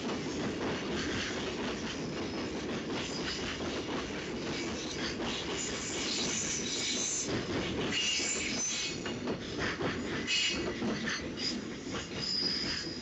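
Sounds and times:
train wagons rumbling on rails: 0.0s - 13.0s
high-pitched wheel squeal: 11.4s - 13.0s.

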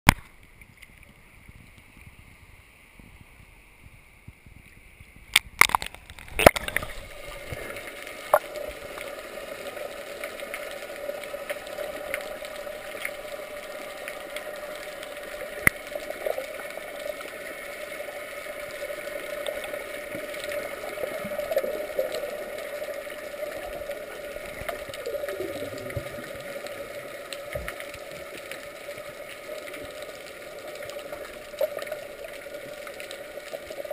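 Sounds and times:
underwater gurgles: 0.1s - 33.9s
muffled underwater rush: 0.2s - 33.9s
water splashing against camera: 3.0s - 9.2s.

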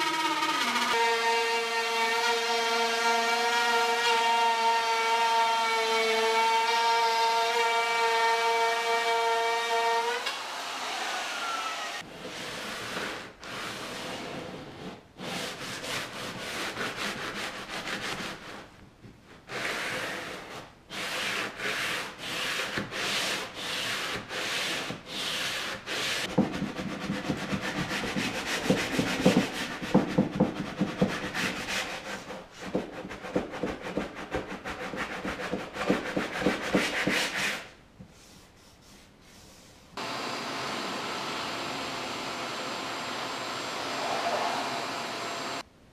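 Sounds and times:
sanding block rubbing wood: 12.3s - 18.7s, 19.5s - 39.8s.

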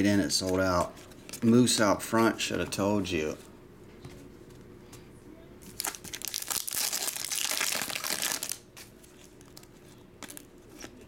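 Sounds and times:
foil wrapper crinkling and tearing: 5.7s - 11.0s.

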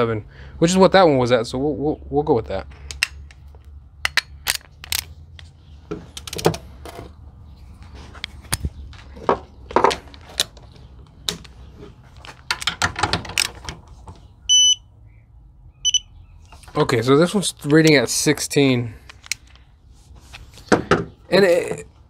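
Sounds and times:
metal tools clicking: 4.0s - 5.2s.

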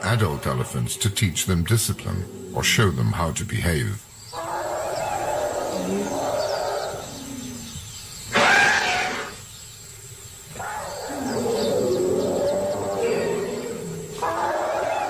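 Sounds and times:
elephants roaring: 4.4s - 9.4s, 10.6s - 15.0s
elephant trumpeting: 8.3s - 9.4s, 10.6s - 15.0s.

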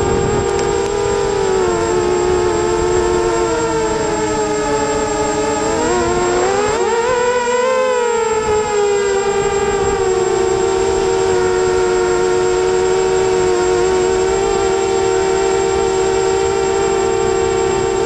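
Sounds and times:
drone motors and propellers whining: 0.0s - 18.0s.

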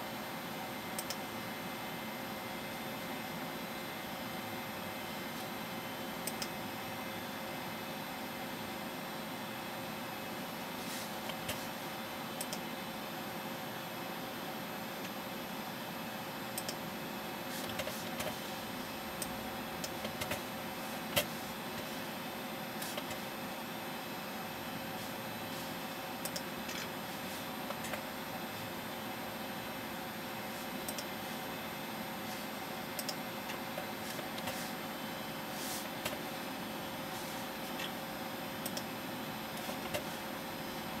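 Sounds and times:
desktop computer hiss and hum: 0.0s - 41.0s
computer mouse clicks: 1.0s - 1.2s, 6.2s - 6.6s, 12.4s - 12.6s, 16.6s - 16.8s, 17.6s - 18.4s, 19.2s - 20.4s, 21.1s - 21.9s, 22.8s - 23.2s, 26.2s - 27.0s, 27.6s - 28.0s, 30.8s - 31.1s, 32.9s - 34.7s, 38.6s - 38.9s, 39.5s - 40.3s.

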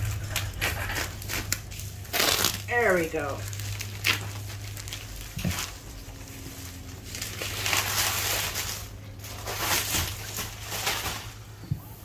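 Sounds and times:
plastic bag rustling and crinkling: 0.0s - 12.0s.

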